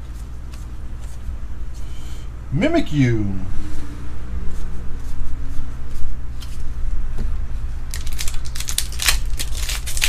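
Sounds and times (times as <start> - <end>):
foil wrapper torn open: 7.9 - 10.0.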